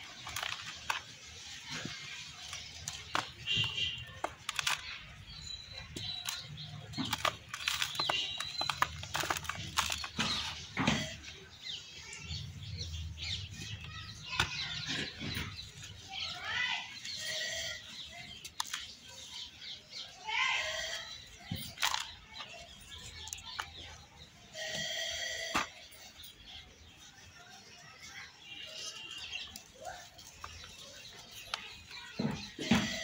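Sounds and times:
hands crushing dry soil: 0.0s - 11.1s.

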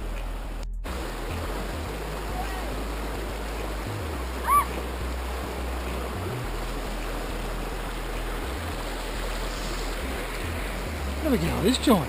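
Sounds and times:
river rapids rushing over rocks: 0.9s - 12.0s
high rising and falling call: 4.4s - 4.8s.

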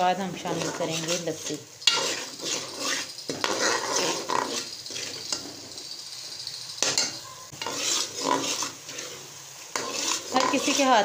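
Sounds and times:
oil sizzling: 0.0s - 11.0s
spoon scraping a metal pot: 0.4s - 11.0s.

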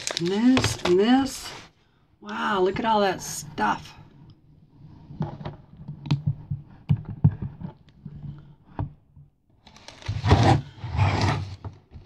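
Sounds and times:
packaging rustle: 0.0s - 1.5s, 9.7s - 10.2s.

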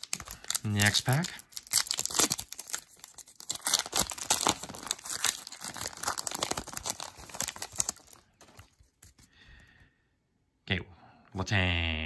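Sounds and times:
card pack wrapper tearing and crinkling: 0.0s - 9.3s.

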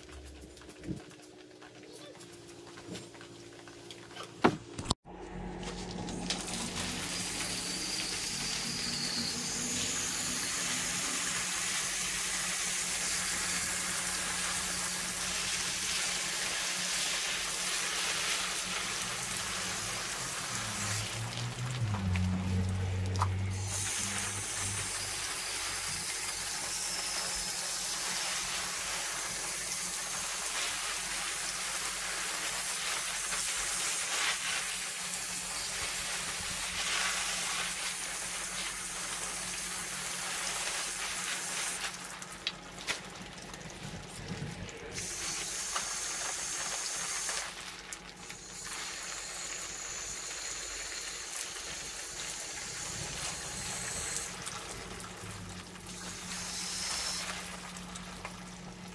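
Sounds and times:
hose spray splashing on metal: 6.3s - 43.2s, 44.9s - 55.1s, 55.8s - 58.4s.

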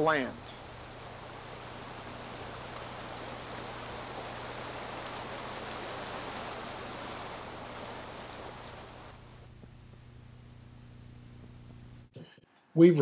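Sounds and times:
stream rushing over stones: 0.6s - 9.2s.

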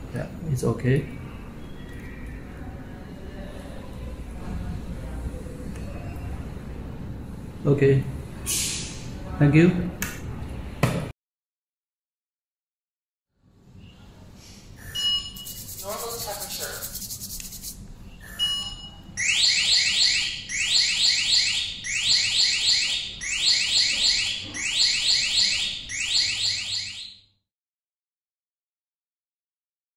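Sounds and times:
short hiss: 8.5s - 9.0s
rising alarm chirps: 19.2s - 27.2s.

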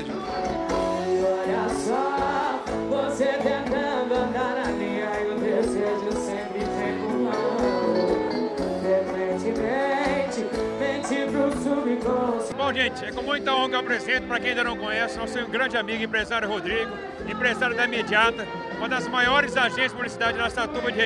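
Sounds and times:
woman singing: 0.0s - 13.2s, 16.4s - 21.0s
live band playing: 0.0s - 21.0s.

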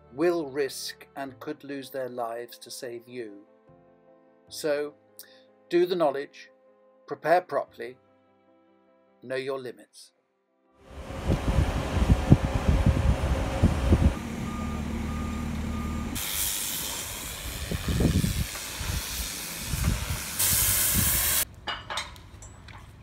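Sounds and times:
hoist engine running: 10.9s - 20.2s
short warning beeps: 14.2s - 16.2s
pressure washer hissing: 15.6s - 21.4s.

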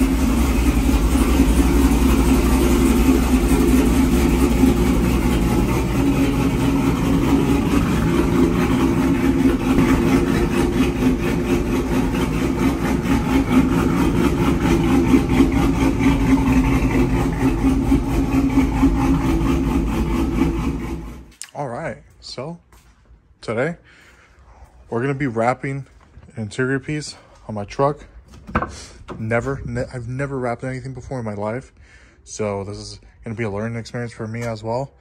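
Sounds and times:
v eight engine idling: 0.0s - 21.3s.

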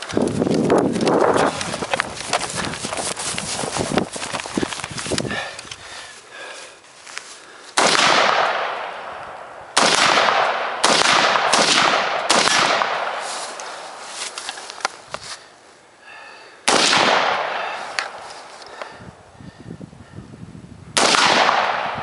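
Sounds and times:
gunshots with long echo: 7.8s - 14.0s, 16.6s - 18.2s, 21.0s - 22.0s.

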